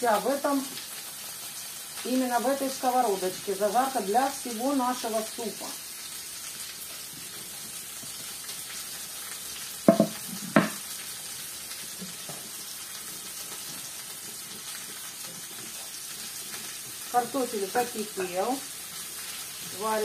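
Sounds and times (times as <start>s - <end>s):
meat sizzling in a frying pan: 0.0s - 20.0s
sharp knocks: 9.9s - 10.8s.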